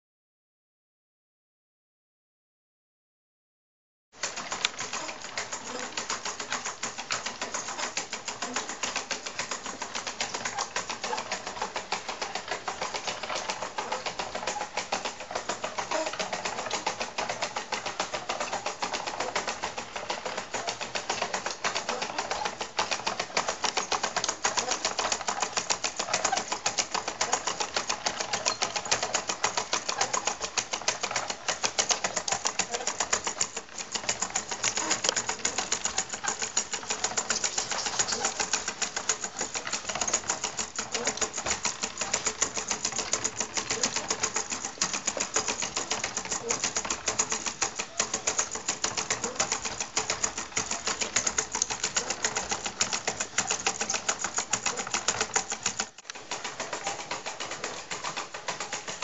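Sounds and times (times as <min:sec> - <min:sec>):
automaton gears clattering: 0:20.2 - 0:59.0.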